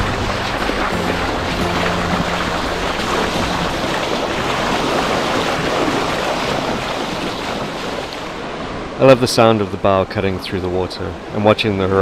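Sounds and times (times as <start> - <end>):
wind on microphone: 0.0 - 9.0
water rushing along hull: 0.0 - 12.0.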